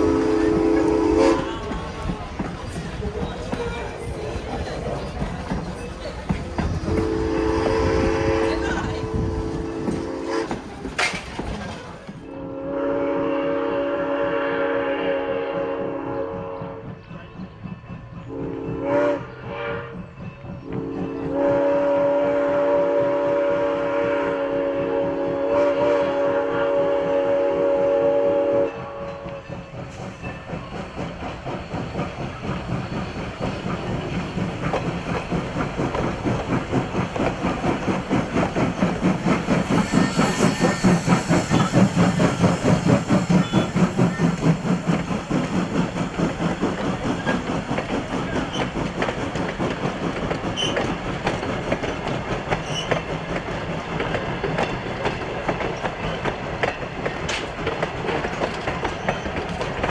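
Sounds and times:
wheels clacking over rail joints: 0.0s - 12.3s, 28.6s - 59.9s
steam locomotive chuffing: 0.0s - 59.9s.

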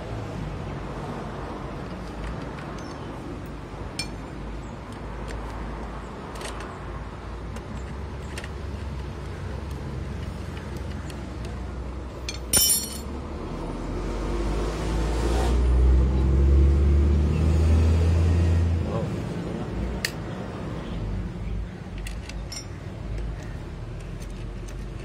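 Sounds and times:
metal clatter: 12.3s - 13.1s
metallic clicks of clutch plates: 21.9s - 25.0s.

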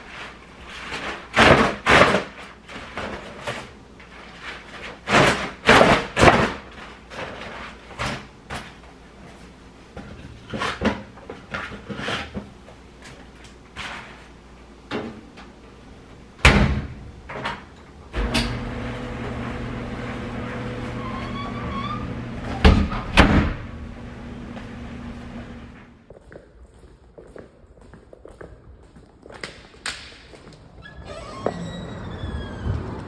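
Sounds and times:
knocks and bang of washer-dryer: 16.4s - 17.0s, 22.6s - 23.7s
closet doors shutting: 16.4s - 25.8s, 30.8s - 33.0s
washing machine humming: 17.2s - 26.0s.

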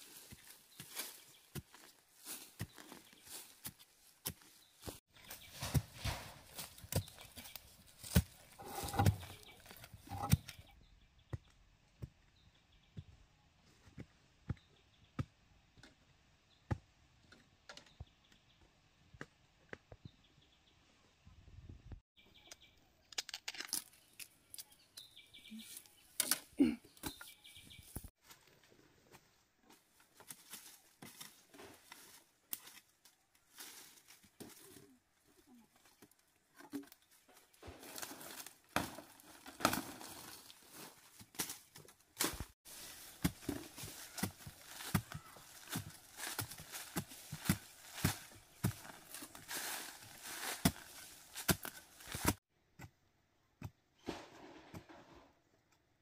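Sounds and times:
leaves and brush rustling: 0.0s - 10.6s, 29.7s - 52.4s.

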